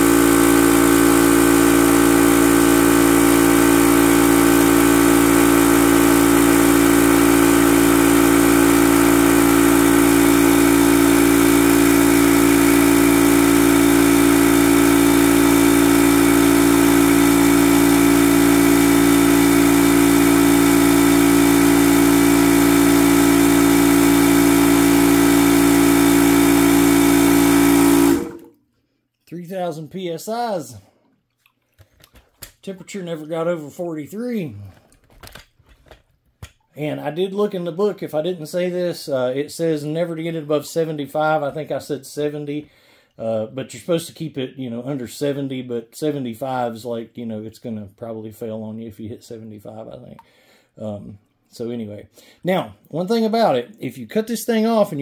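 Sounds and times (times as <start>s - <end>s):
air compressor running: 0.0s - 28.6s.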